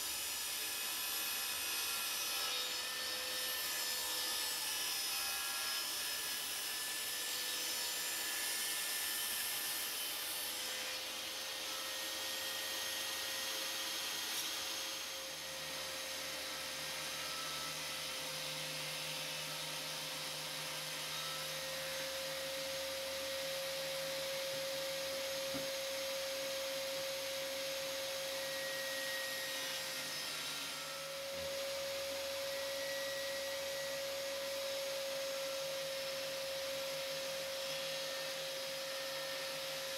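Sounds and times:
saw cutting wooden board: 0:00.0 - 0:39.9
table saw whining: 0:00.0 - 0:39.9.

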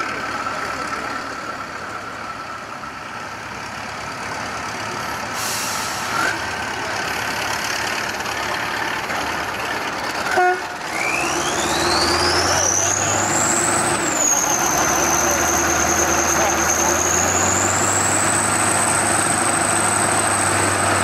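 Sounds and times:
heavy diesel engines under load: 0:00.0 - 0:21.0
engine revving whine: 0:10.8 - 0:21.0.

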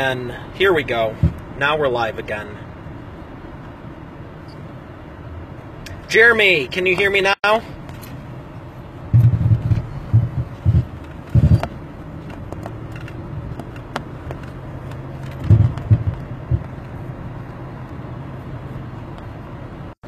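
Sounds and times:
road and engine rumble: 0:00.0 - 0:20.0
low thumps: 0:01.1 - 0:01.6, 0:09.1 - 0:14.4, 0:15.3 - 0:17.0.

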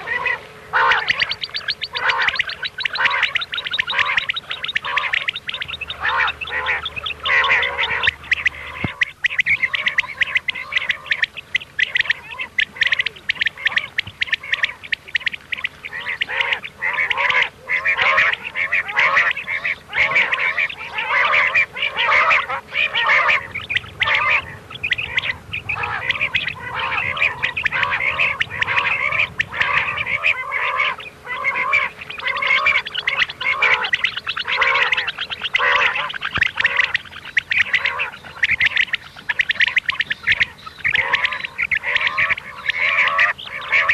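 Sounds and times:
quail chorus calling: 0:00.0 - 0:43.9.

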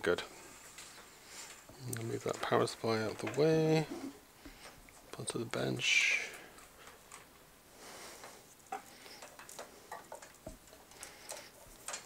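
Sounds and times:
wires clicking and rustling: 0:00.5 - 0:07.5, 0:08.1 - 0:12.0.

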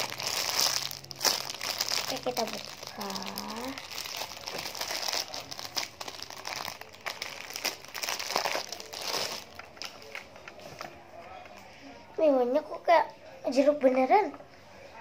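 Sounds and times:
plastic packaging crinkling: 0:00.0 - 0:10.4.

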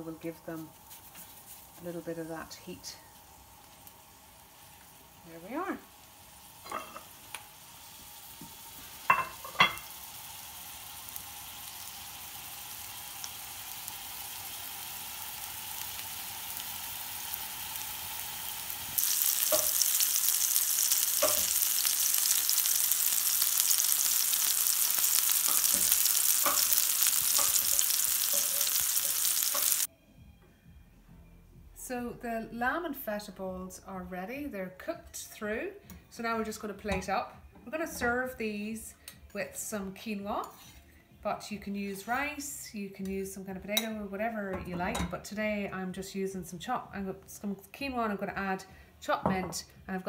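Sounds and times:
meatballs sizzling in oil: 0:00.0 - 0:29.9.

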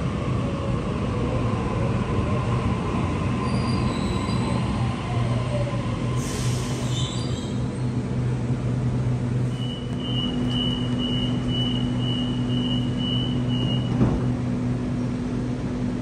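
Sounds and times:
train low hum: 0:00.0 - 0:16.0
train doors thumping shut: 0:13.4 - 0:14.4.

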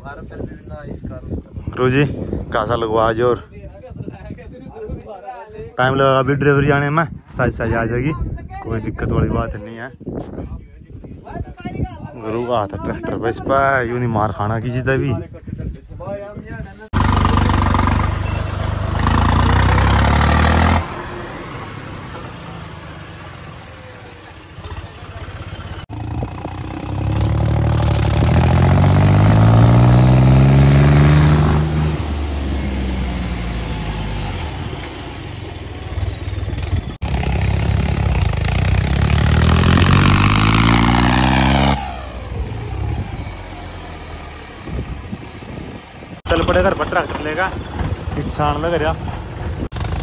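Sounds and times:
tractor diesel engines revving: 0:16.9 - 0:50.0
high whistle: 0:17.9 - 0:19.0, 0:21.8 - 0:24.2, 0:43.0 - 0:46.2.

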